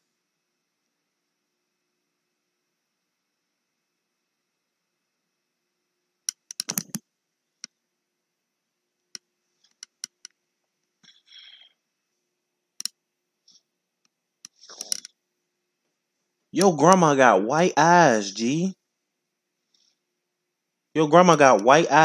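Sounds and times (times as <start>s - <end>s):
sharp clicks and light knocks: 6.3s - 7.0s, 9.1s - 10.4s.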